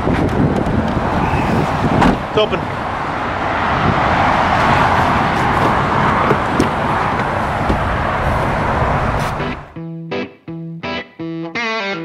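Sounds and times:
road traffic rushing: 0.0 - 9.8
car door clicks and knocks: 5.6 - 7.9.

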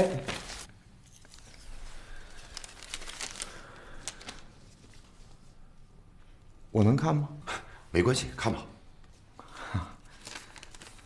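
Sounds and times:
paper rustling and crinkling: 0.0 - 5.5, 10.0 - 11.0.

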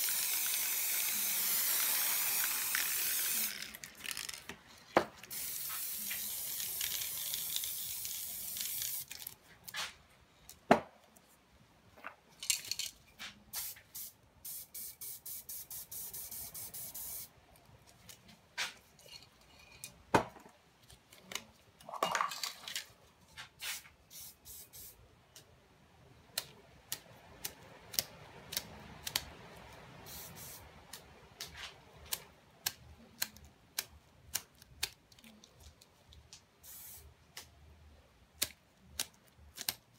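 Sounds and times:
spray paint can hissing: 0.0 - 4.4, 5.2 - 9.3, 13.5 - 17.3, 23.6 - 25.0, 30.0 - 30.6, 36.6 - 37.1.

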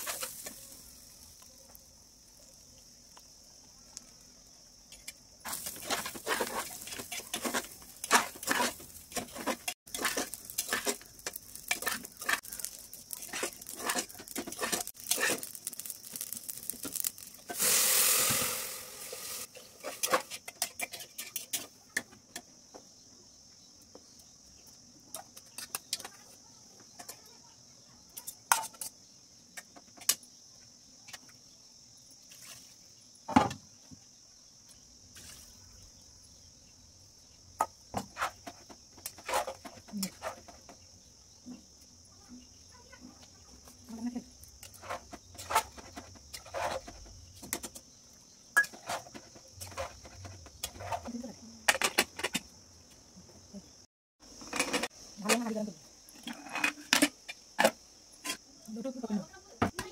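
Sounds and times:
high insect chirring: 0.0 - 21.9, 22.5 - 59.9
spatula scraping metal pot: 5.5 - 21.7, 44.6 - 47.0, 48.6 - 51.9.

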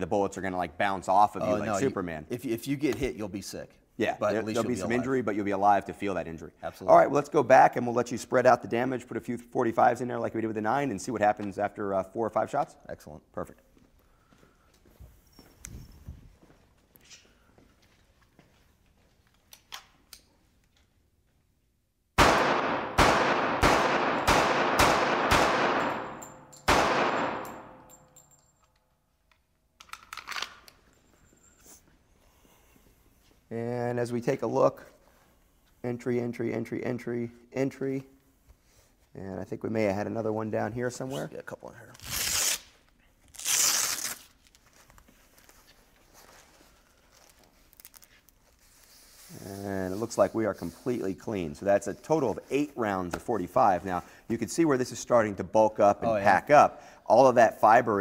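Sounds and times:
pistol shots with echo: 22.2 - 27.8
fabric straps ripping open: 41.8 - 45.6, 47.1 - 48.6.

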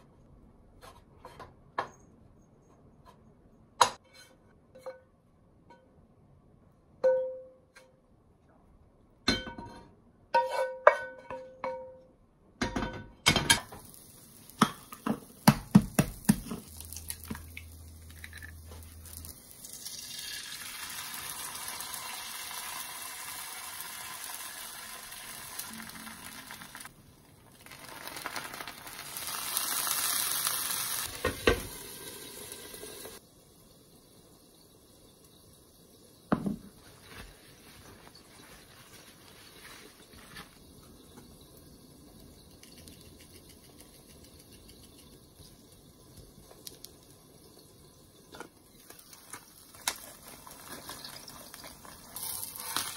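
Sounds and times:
hot oil sizzling: 13.5 - 52.9.

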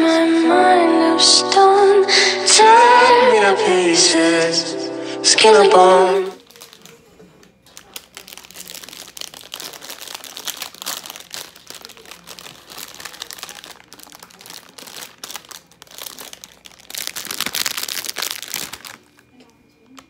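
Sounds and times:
plastic wrapper crinkling: 6.4 - 20.0.

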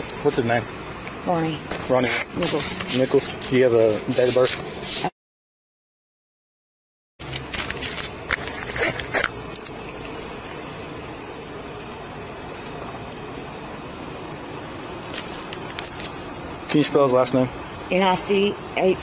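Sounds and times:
steady background hum: 7.2 - 19.0.

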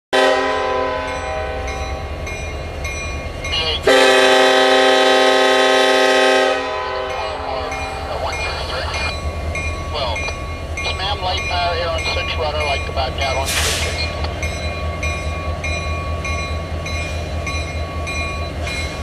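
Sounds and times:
locomotive horn blasts: 0.1 - 1.8, 3.8 - 7.5
train rumbling: 0.1 - 19.0.

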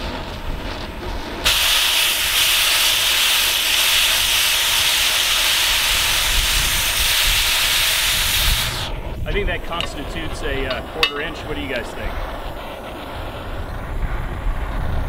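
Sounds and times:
cutting torch hissing: 0.0 - 15.0.

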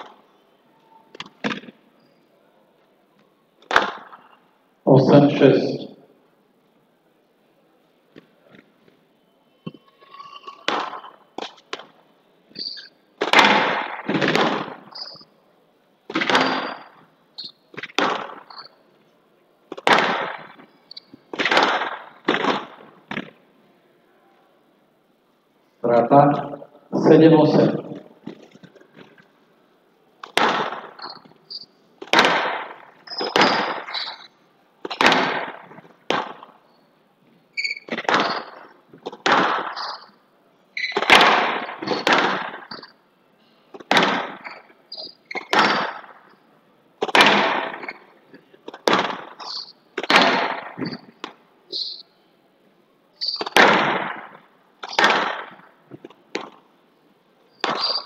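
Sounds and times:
squash ball hitting rackets and walls: 1.1 - 1.8, 3.6 - 4.2, 10.6 - 15.2, 16.1 - 18.8, 19.7 - 23.4, 30.2 - 36.6, 37.6 - 40.2, 40.8 - 43.0, 43.7 - 46.3, 47.0 - 51.4, 53.2 - 56.7, 57.5 - 58.0.

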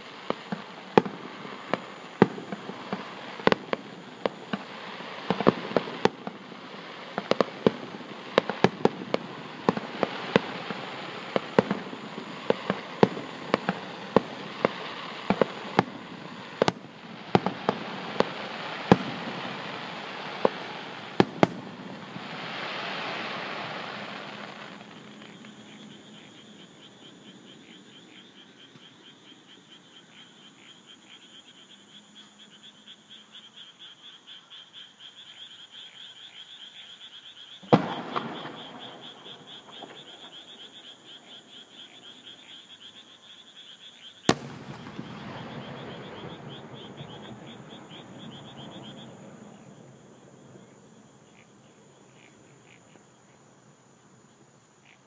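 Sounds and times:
distant fireworks bangs: 0.0 - 28.9, 37.6 - 42.5, 44.3 - 51.5
frog and insect chorus: 0.0 - 55.0.

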